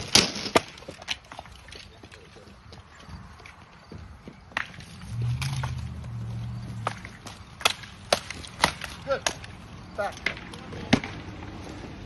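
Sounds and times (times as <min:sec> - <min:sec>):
sticks cracking on sticks and armour: 0:06.8 - 0:11.2.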